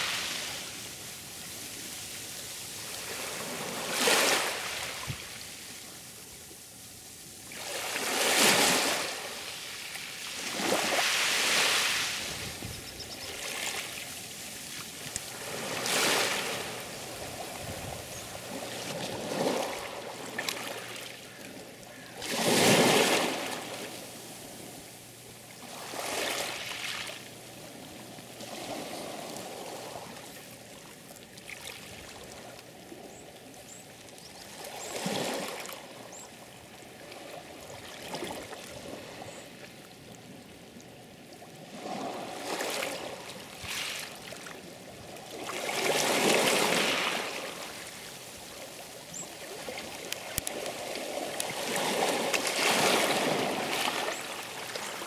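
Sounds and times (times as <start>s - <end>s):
sea waves breaking: 0.0s - 5.7s, 7.5s - 24.8s, 45.2s - 55.0s.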